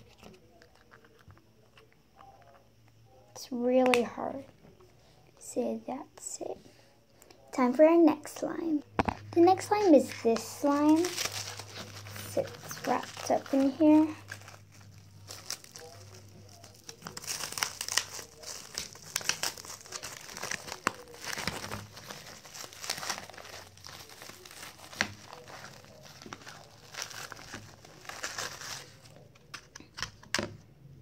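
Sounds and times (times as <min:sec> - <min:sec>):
plastic wrap crinkling: 0:09.1 - 0:29.8.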